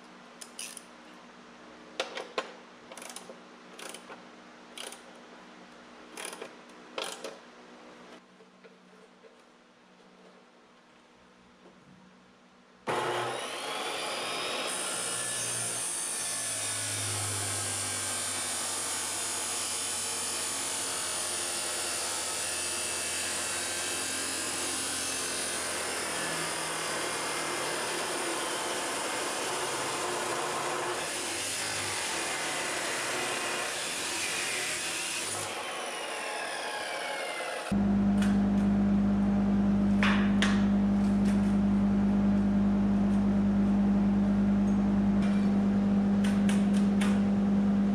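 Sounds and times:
low steady hum: 0:37.8 - 0:47.9.

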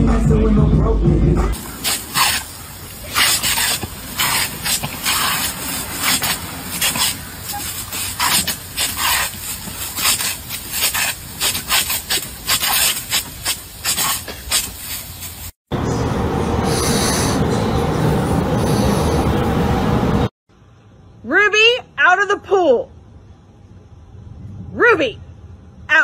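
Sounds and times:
sprinkler spraying water spurts: 0:01.6 - 0:15.6.

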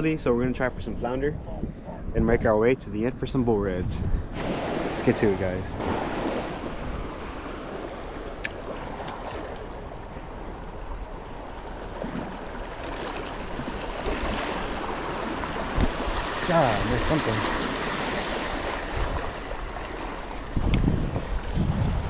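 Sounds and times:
wind on microphone: 0:00.0 - 0:12.6, 0:13.2 - 0:22.0
small waves washing against rocks: 0:05.8 - 0:21.4.

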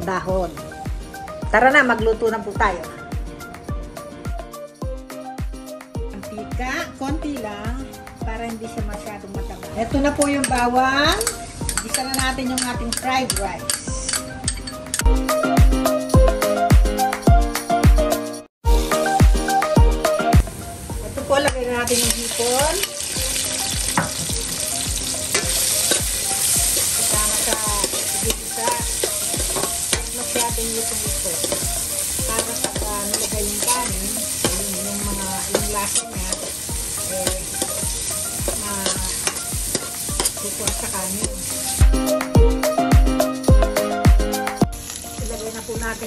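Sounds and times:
shrimp sizzling in hot oil: 0:09.4 - 0:13.4, 0:20.4 - 0:46.0
metal spoon scraping wok: 0:10.1 - 0:15.1, 0:25.0 - 0:41.8.

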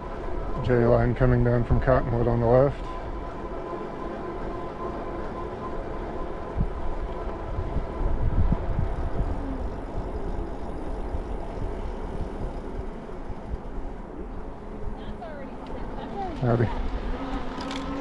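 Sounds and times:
tyres rolling on asphalt: 0:02.5 - 0:17.9
electric motor whine: 0:03.0 - 0:18.0
wind buffeting microphone: 0:06.1 - 0:18.0.

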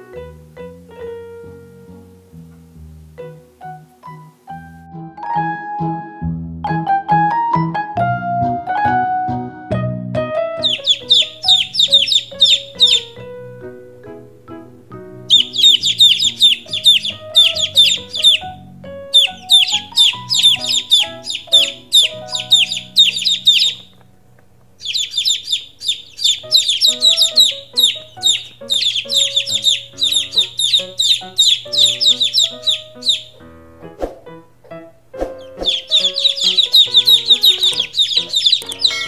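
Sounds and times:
quiet background music: 0:00.0 - 0:39.0
baby chicks peeping: 0:10.6 - 0:33.5, 0:35.2 - 0:39.0.

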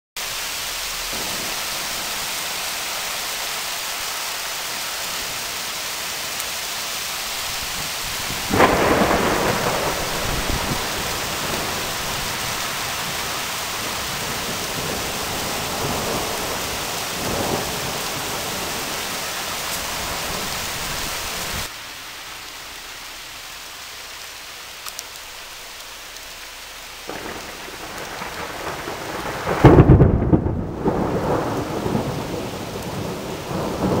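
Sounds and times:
rain hiss: 0:00.2 - 0:34.0
thunder rumbling: 0:01.0 - 0:02.8, 0:07.2 - 0:21.7, 0:27.0 - 0:34.0.

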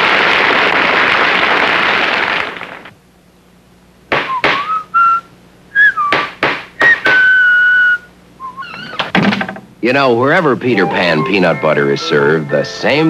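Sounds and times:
hammer knocking on wood: 0:04.1 - 0:04.7, 0:06.1 - 0:07.3
person whistling: 0:04.2 - 0:08.6, 0:10.7 - 0:11.9.

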